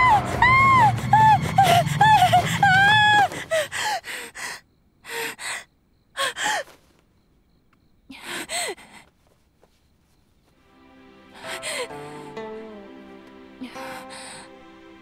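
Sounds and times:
low hum: 0.0s - 3.8s.

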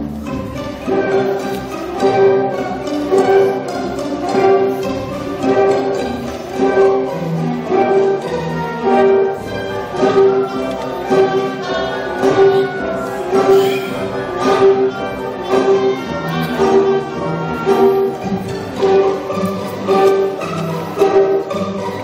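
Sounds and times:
accented orchestral chord: 0.0s - 22.0s
orchestra playing bowed strings: 0.0s - 22.0s.

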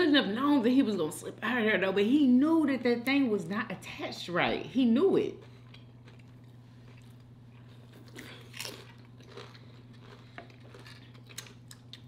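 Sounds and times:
faint low hum: 0.0s - 12.0s
person chewing food: 5.4s - 12.0s
crunchy bites: 8.1s - 12.0s.

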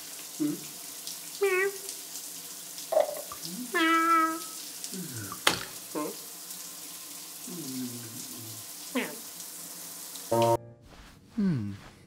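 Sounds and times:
water running into a bath: 0.0s - 10.6s
man groaning: 4.9s - 5.4s, 7.5s - 8.5s, 11.4s - 11.9s.

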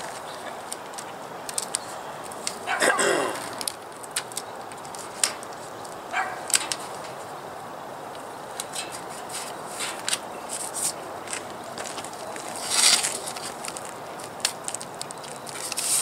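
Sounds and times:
tape ripping off roll: 0.0s - 7.1s, 11.8s - 16.0s
steady background noise: 0.0s - 16.0s.

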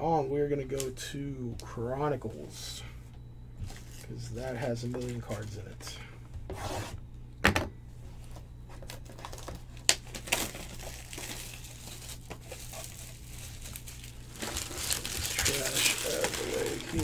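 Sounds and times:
plastic wrapping crinkling and tearing: 8.8s - 17.0s.

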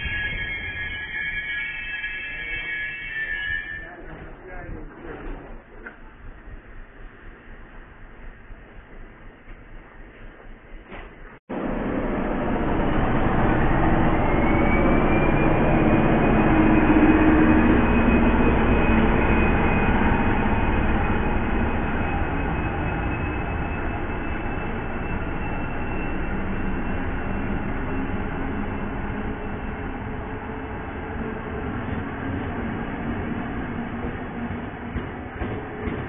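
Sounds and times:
passenger coaches rumbling past: 11.0s - 36.0s
diesel locomotive passing: 11.5s - 36.0s.

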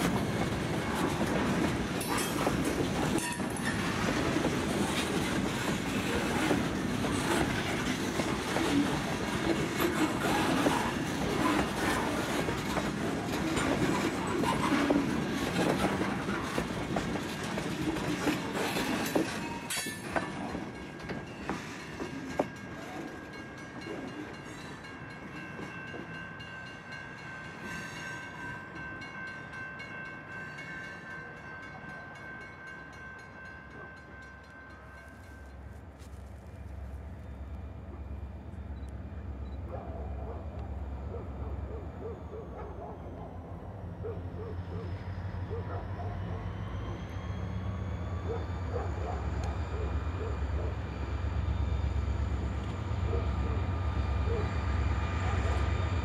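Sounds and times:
train wheels clattering over rail joints: 0.0s - 24.3s.

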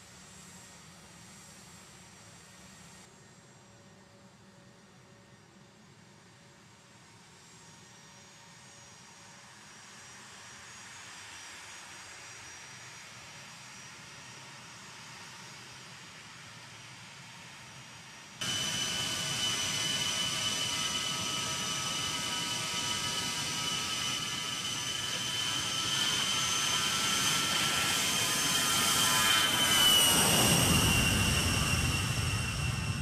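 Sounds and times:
jet engines whining: 18.4s - 33.0s
low jet rumble: 18.4s - 33.0s.

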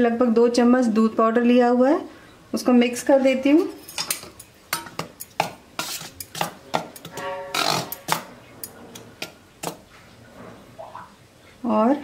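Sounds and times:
spoon scraping metal bowl: 3.6s - 9.8s
metallic ring: 7.0s - 8.2s.

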